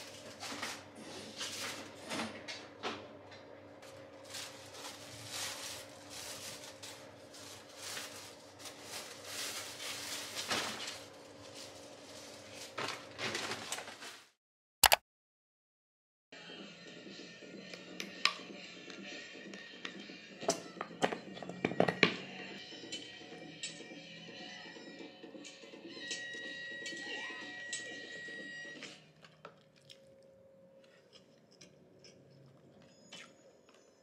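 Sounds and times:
sharp click: 14.8 - 15.0.

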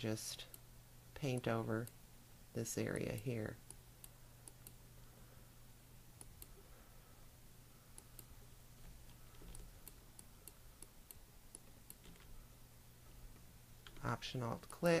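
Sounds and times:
low steady hum: 0.0 - 15.0
computer mouse clicks: 3.1 - 4.8, 6.2 - 6.6, 7.9 - 12.4, 13.3 - 14.8.

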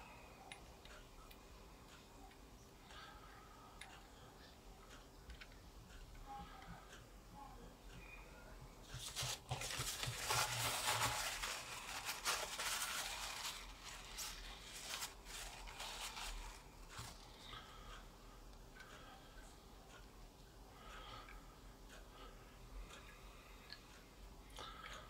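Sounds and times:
paper towel rustling: 8.9 - 17.3.

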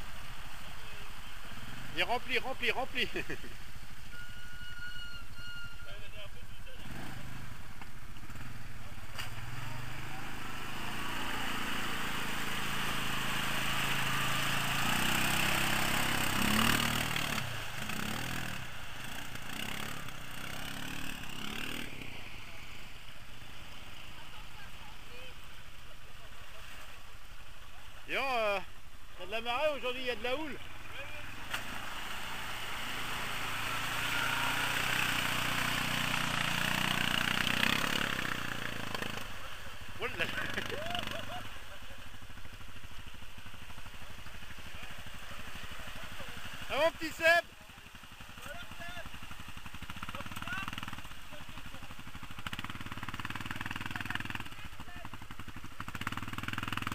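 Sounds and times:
quad bike engine revving: 6.6 - 23.0, 29.8 - 56.9
water and mud splashing: 9.1 - 21.0, 29.3 - 56.9
churned mud and water hiss: 30.6 - 37.2, 38.2 - 46.7.

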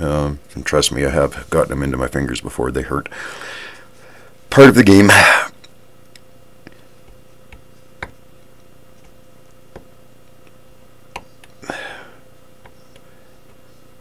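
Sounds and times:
faint steady hum: 0.0 - 14.0
breathy hiss: 3.1 - 4.4, 5.1 - 5.6, 11.6 - 12.2
graver chipping steel clicks: 5.6 - 11.6.

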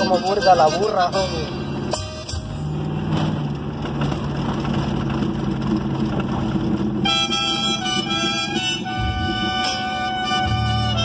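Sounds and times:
music: 0.0 - 2.8, 7.1 - 11.0
car cabin road and engine noise: 0.0 - 11.0.

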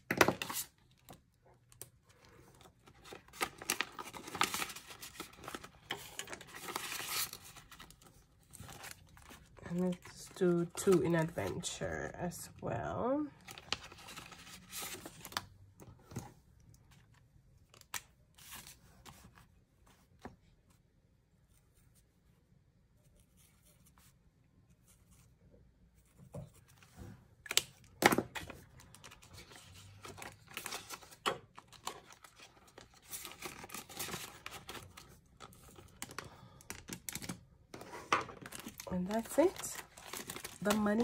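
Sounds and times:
plastic pouches and paper rustling: 0.1 - 11.8, 27.4 - 41.0.

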